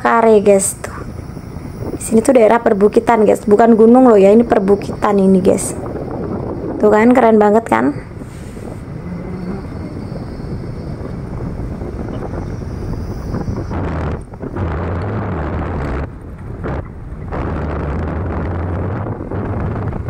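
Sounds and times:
wind rushing over microphone: 0.0s - 20.0s
motorcycle engine humming: 8.1s - 20.0s.

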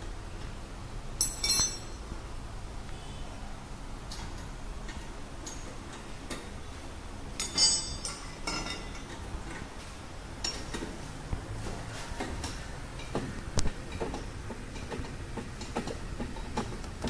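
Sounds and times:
sharp ringing metal clank: 1.2s - 2.0s, 7.4s - 9.0s
spanner clinking against bolts: 1.2s - 2.0s, 7.4s - 9.6s, 10.4s - 10.9s.

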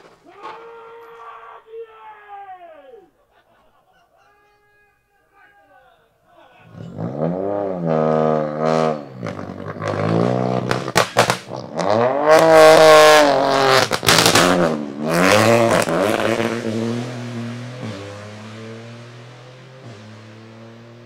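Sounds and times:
rally car engine revving: 6.7s - 21.0s
sharp cracks: 10.6s - 11.6s, 13.7s - 14.7s.

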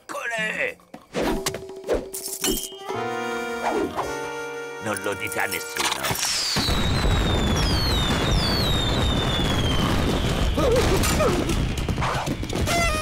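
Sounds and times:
fireworks crackling and rumbling: 6.1s - 13.0s
falling firework whistles: 6.2s - 13.0s.

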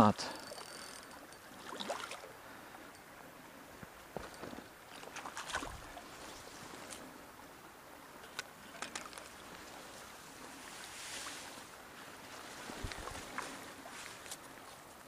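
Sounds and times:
shallow river water flowing: 0.0s - 15.0s
rush of water: 1.4s - 15.0s.

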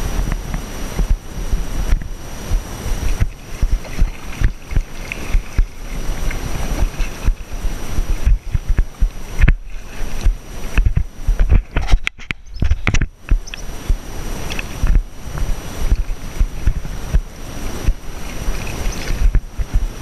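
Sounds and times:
low thumping rumble: 0.0s - 20.0s
kayak paddle splashing in water: 3.0s - 11.7s, 15.9s - 19.8s.

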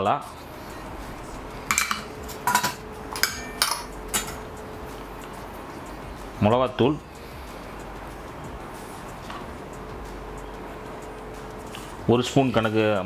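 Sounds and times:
metal bowls clinking: 1.6s - 5.0s.

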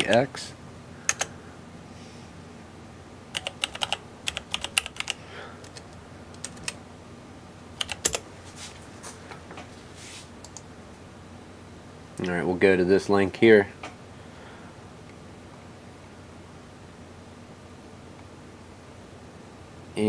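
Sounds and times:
typing on keyboard: 1.1s - 1.3s, 3.4s - 6.8s, 7.8s - 8.2s.

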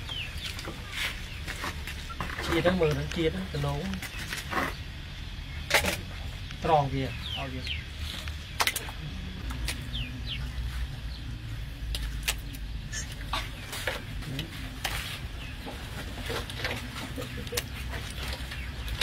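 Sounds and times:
steady low rumble: 0.0s - 19.0s
chickens clucking: 12.8s - 19.0s.

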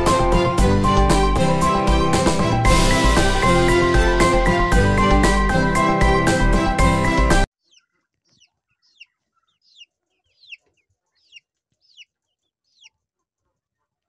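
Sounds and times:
background music: 0.0s - 7.5s
chicks peeping: 7.6s - 14.0s.

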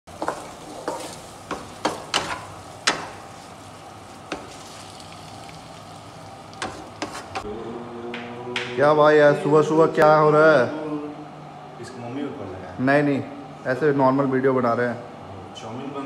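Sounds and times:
spatula knocking and scraping pan: 0.1s - 3.5s, 4.3s - 4.6s, 6.6s - 7.4s
noodles sizzling in a frying pan: 0.1s - 7.4s.

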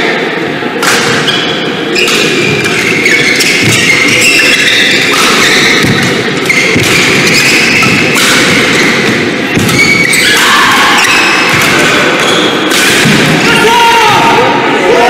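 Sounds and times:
rackets hitting shuttlecock: 0.8s - 13.4s
shoes thudding and squeaking: 1.1s - 13.2s.

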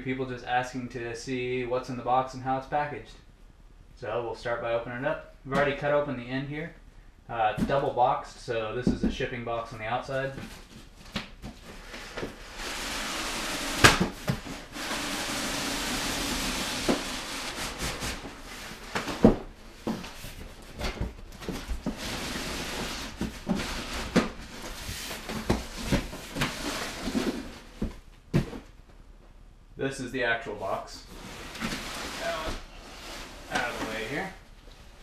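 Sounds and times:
boxes knocking and thumping: 7.5s - 8.0s, 10.3s - 28.8s
cardboard scraping and rustling: 10.4s - 28.7s, 31.0s - 34.4s.

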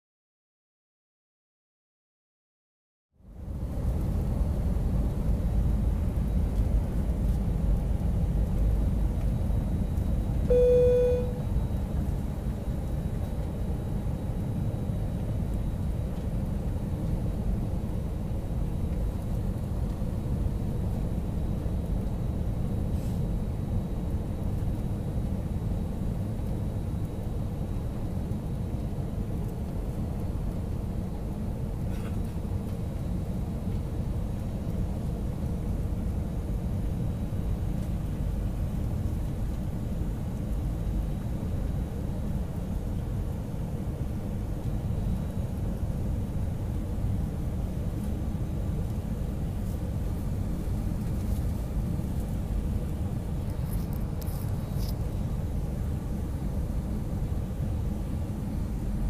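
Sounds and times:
aircraft cabin engine rumble: 3.2s - 59.0s
short cabin tone: 10.5s - 11.6s.

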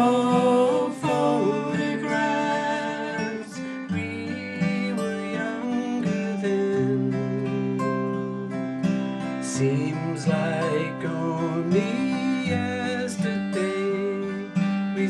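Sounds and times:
acoustic guitars strummed and picked: 0.0s - 15.0s
person singing: 0.0s - 15.0s.

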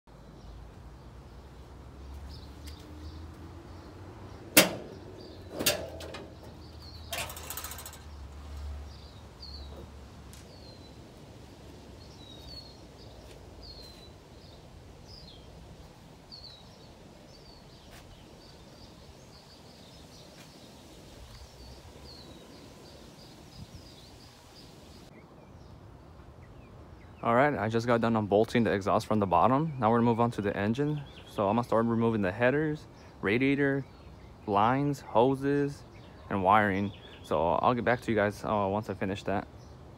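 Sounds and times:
birds chirping: 0.1s - 39.9s
hood hinges creaking: 4.3s - 10.0s
hood latch clunks: 4.5s - 8.1s.

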